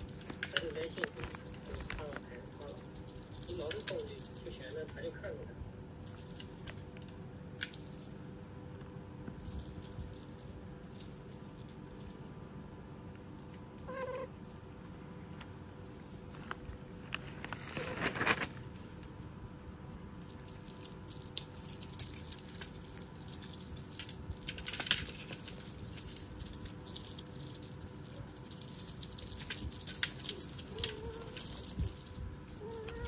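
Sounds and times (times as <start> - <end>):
scratches and rustles: 16.2 - 19.3, 20.3 - 33.0
cats clawing at toy pole: 20.3 - 33.0.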